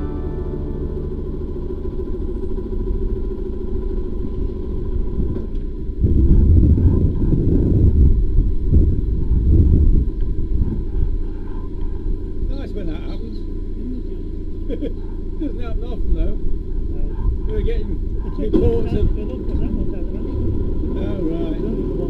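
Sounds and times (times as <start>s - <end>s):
wind buffeting microphone: 2.6s - 12.5s, 16.1s - 20.9s.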